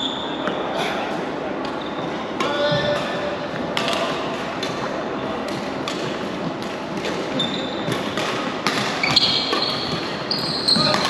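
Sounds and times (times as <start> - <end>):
shoe squeaking on wooden court: 0.0 - 0.6, 1.7 - 2.9, 7.2 - 11.0
rackets hitting shuttlecock: 2.4 - 10.2.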